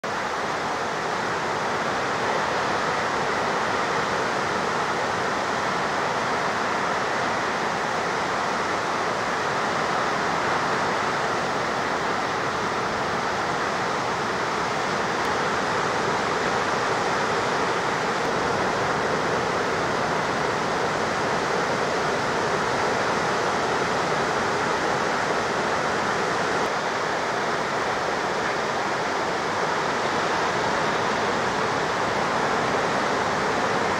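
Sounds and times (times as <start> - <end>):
ocean surf hiss: 0.1 - 33.9.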